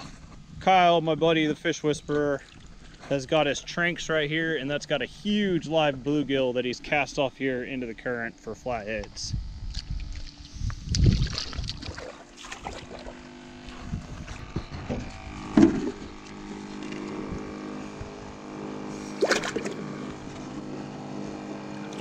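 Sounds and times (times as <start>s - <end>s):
aerator pump humming: 0.0s - 22.0s
water bubbling and splashing: 11.0s - 13.2s, 19.1s - 19.9s.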